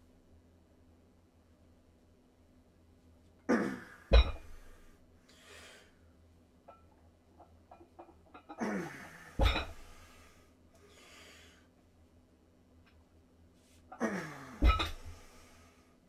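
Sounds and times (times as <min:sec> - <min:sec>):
weight thudding down: 0:04.1 - 0:04.7, 0:09.4 - 0:09.9, 0:14.6 - 0:15.2
man grunting: 0:14.0 - 0:14.7.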